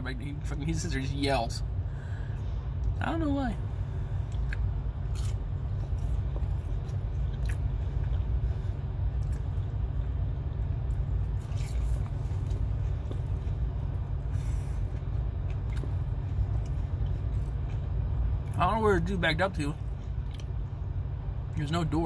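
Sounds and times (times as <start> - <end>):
low rumble in truck cab: 0.0 - 22.0
man chewing food: 4.1 - 18.6, 19.8 - 20.9.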